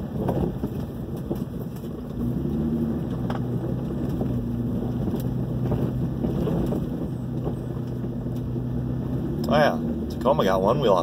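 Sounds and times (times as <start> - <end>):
truck knocks and rattles: 0.0 - 8.6
truck engine running: 0.0 - 11.0.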